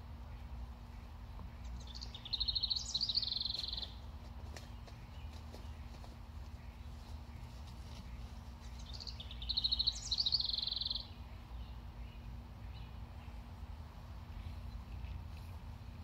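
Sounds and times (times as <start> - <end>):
low background rumble: 0.0 - 16.0
songbird trilling: 0.9 - 4.0, 8.1 - 13.3.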